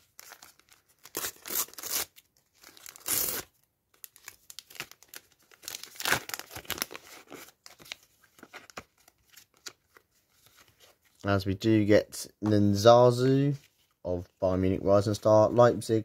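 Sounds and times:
paper packet tearing: 0.2s - 3.5s
wrapper crinkling and rustling: 4.0s - 9.4s.

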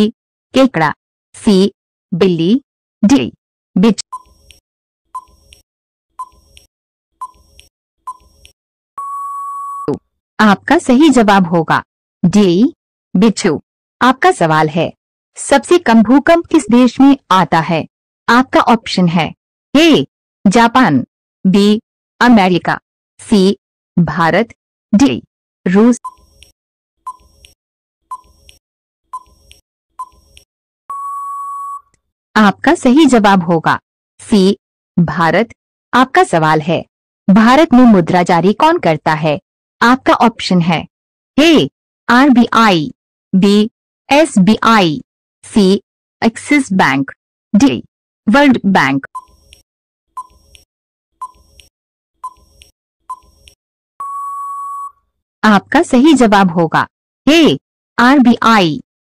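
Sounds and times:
countdown timer beeps: 9.0s - 10.0s, 30.9s - 31.8s, 54.0s - 54.9s
long steady beep: 9.0s - 10.0s, 30.9s - 31.9s, 54.0s - 55.0s.

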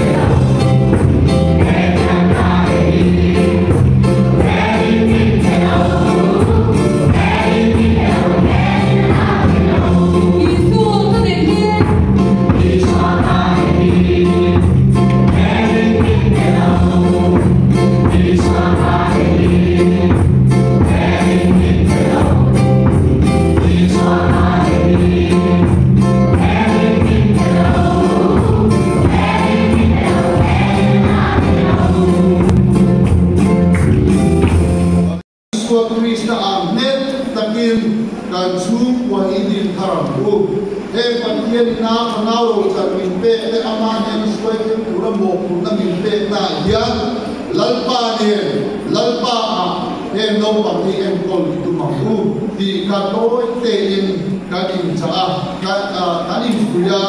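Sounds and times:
congregation and children singing: 0.0s - 11.2s, 11.8s - 33.9s.

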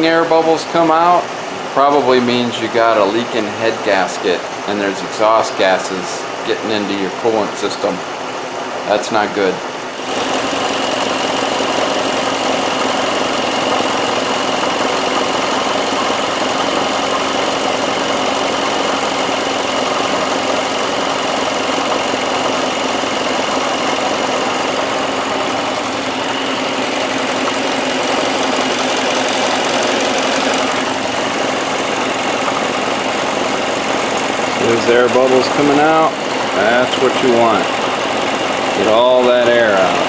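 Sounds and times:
car engine idling: 9.7s - 40.0s.

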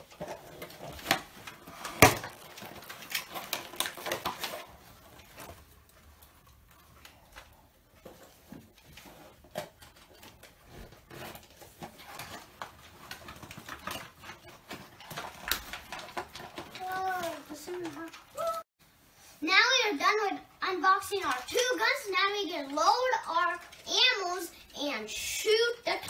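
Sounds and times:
packaging clicks and rustles: 0.0s - 18.6s.

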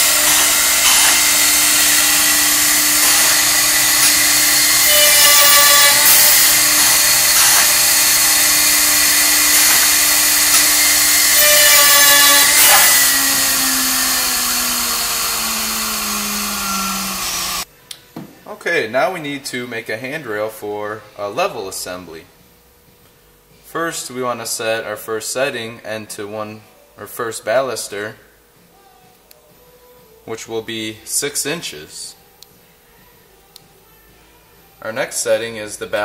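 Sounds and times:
drill bit boring into wood: 0.0s - 17.6s
router motor whining: 0.0s - 17.7s.

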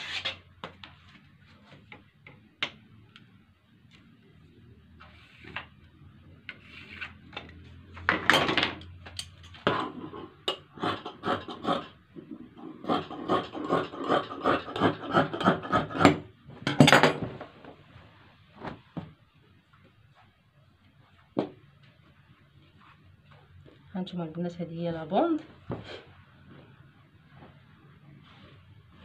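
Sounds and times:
marker scraping along ruler: 5.0s - 5.7s, 6.5s - 7.2s
loud rasp: 9.8s - 12.0s, 12.6s - 16.2s.

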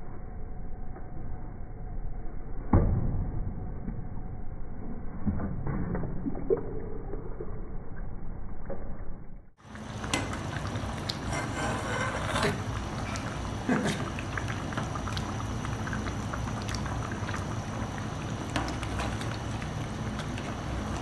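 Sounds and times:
metal ladle scraping and clinking pot: 11.1s - 12.7s.

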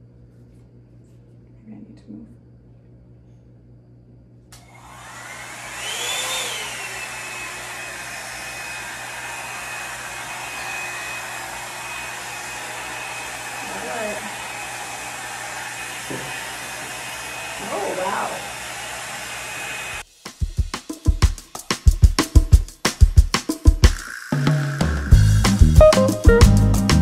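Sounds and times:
hair dryer running: 4.5s - 20.6s.

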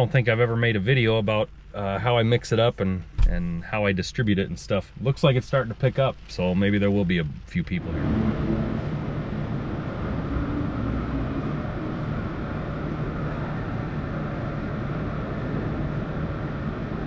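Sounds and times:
faint low hum: 0.0s - 17.0s
rush of noise: 7.7s - 17.0s.

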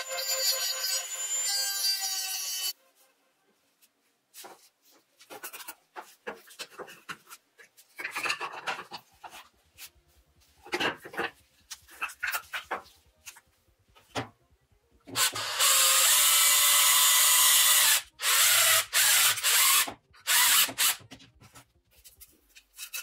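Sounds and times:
drill boring into plastic: 15.2s - 21.0s.

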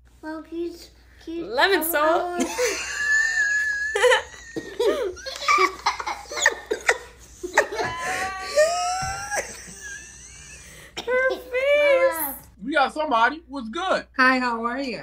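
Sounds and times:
small child laughing: 2.4s - 10.6s
people giggling: 2.4s - 10.8s.

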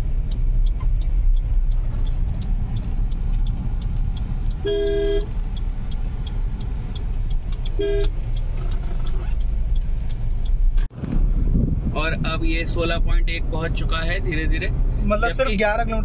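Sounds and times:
road and engine noise in car: 0.0s - 16.0s
car horn toots: 4.6s - 5.3s, 7.8s - 8.1s.

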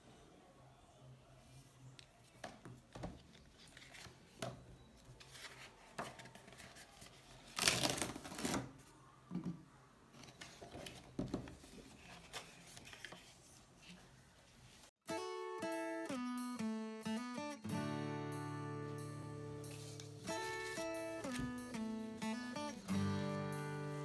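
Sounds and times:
paper rustling and crackling: 2.1s - 8.8s, 10.1s - 14.9s, 19.7s - 21.8s.

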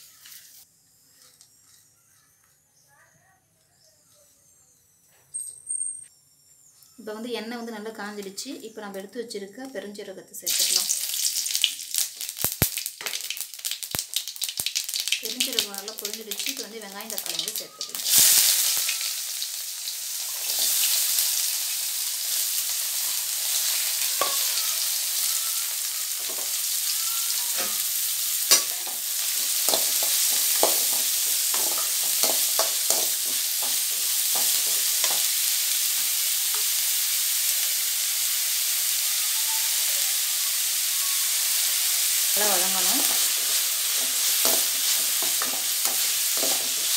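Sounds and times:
onions sizzling in hot oil: 0.0s - 0.6s, 10.4s - 46.9s
metal ladle scraping a pan: 43.0s - 46.9s.

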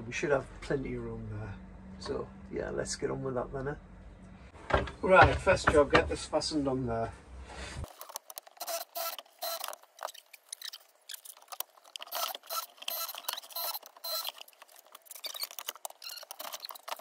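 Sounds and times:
hands handling tools and small parts: 7.8s - 17.0s.

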